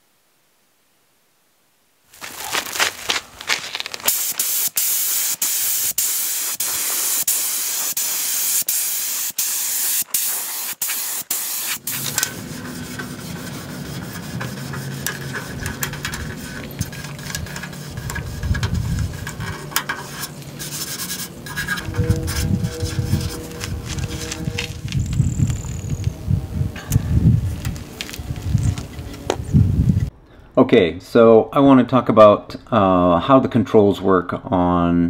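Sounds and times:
paint spray gun hissing: 4.0s - 21.4s.

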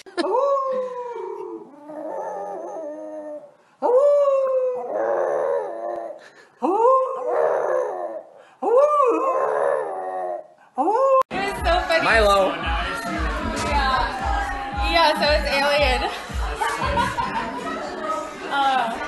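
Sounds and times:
dog howling: 0.2s - 11.2s.

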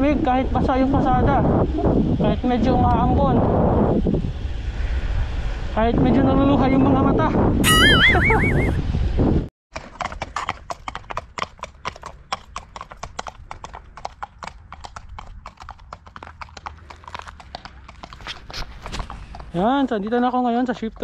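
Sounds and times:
horse hooves on tarmac: 9.7s - 21.0s.

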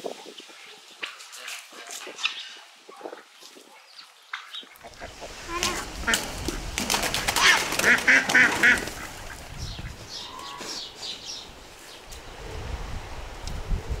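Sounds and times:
higher bird calls: 3.9s - 12.0s
ducks quacking: 4.3s - 11.0s.

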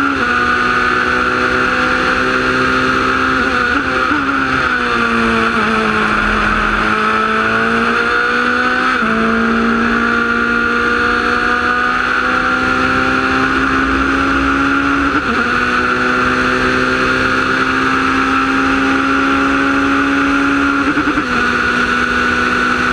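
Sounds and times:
racing engine at full throttle: 0.0s - 22.9s
wind rushing: 5.0s - 8.7s.

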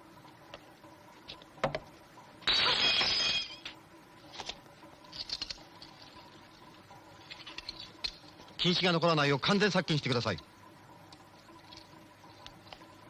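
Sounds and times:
glassware shattering: 2.5s - 3.7s.

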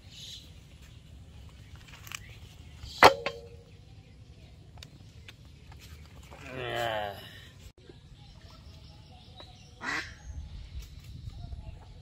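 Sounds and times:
metal bowl knock with ring: 3.0s - 3.6s.

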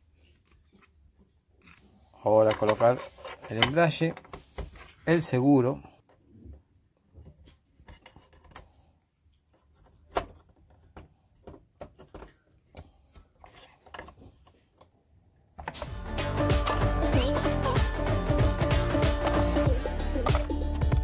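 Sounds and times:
loud music: 15.9s - 21.0s.

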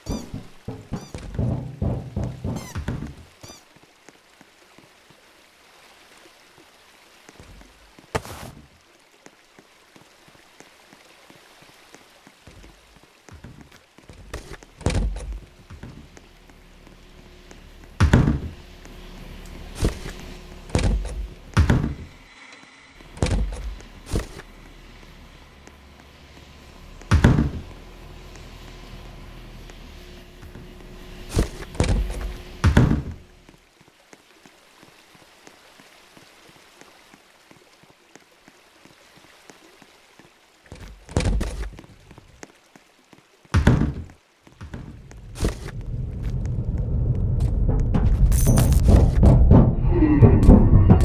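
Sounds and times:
knocks and thumps: 0.0s - 3.4s, 13.3s - 16.1s, 17.9s - 18.6s, 19.8s - 22.1s, 23.1s - 24.4s, 27.0s - 27.7s, 31.3s - 33.2s, 40.8s - 41.8s, 43.5s - 51.0s.

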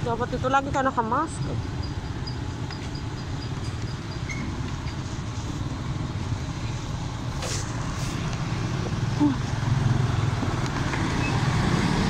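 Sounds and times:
motorcycle engine rumble: 0.0s - 12.0s
short hisses: 7.3s - 8.2s.

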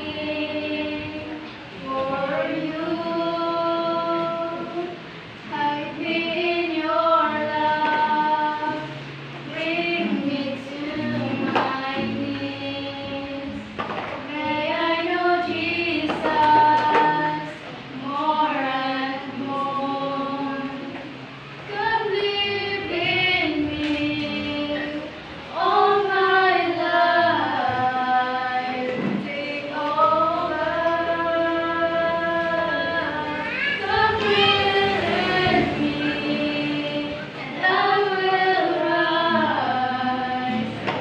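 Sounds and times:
two women singing: 0.0s - 41.0s.

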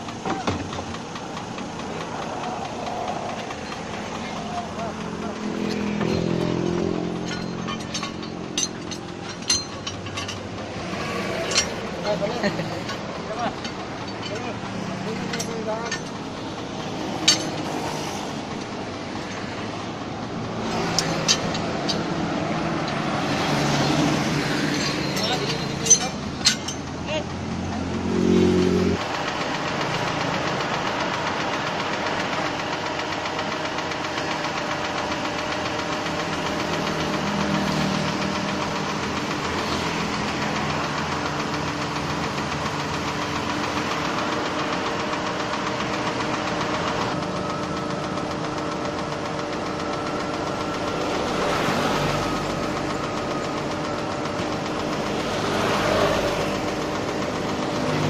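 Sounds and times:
crane truck engine running: 0.0s - 58.0s.

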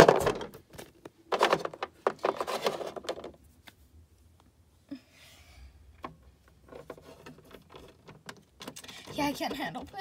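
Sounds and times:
plastic toys tapping and clicking: 0.0s - 3.4s, 6.0s - 10.0s
faint rubbing of plastic toys: 1.4s - 3.9s, 5.3s - 10.0s.

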